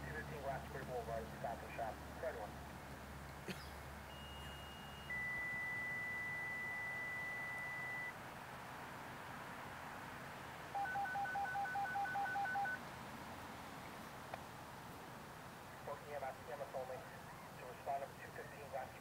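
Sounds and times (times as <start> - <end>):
faint high tone: 4.1 - 8.1
steady high beep: 4.1 - 8.1, 10.8 - 12.8
rapid dual-tone beeps: 4.1 - 8.2, 10.8 - 12.8.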